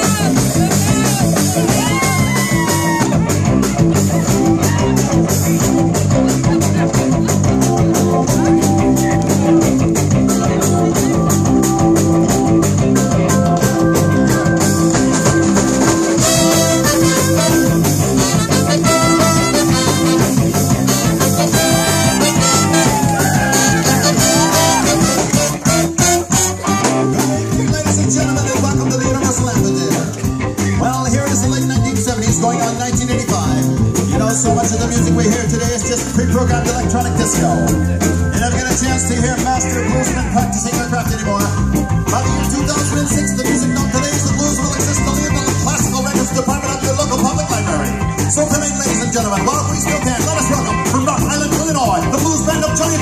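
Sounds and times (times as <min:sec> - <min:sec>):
drums: 0:00.0 - 0:53.0
rhythm and blues band playing: 0:00.0 - 0:53.0
horn section: 0:14.7 - 0:27.6.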